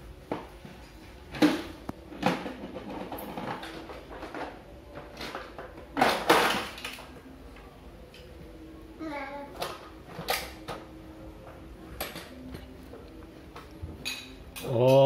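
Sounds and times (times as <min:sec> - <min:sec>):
plastic toys clattering: 0:02.1 - 0:07.2.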